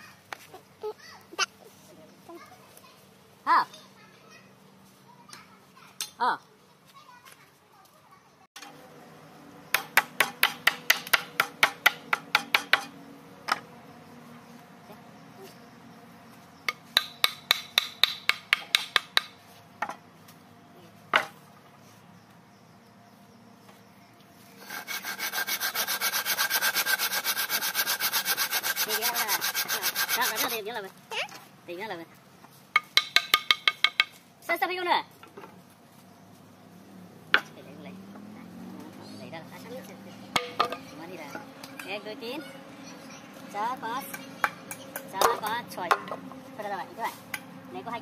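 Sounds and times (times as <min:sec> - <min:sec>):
hand saw cutting wood: 0:24.6 - 0:30.7.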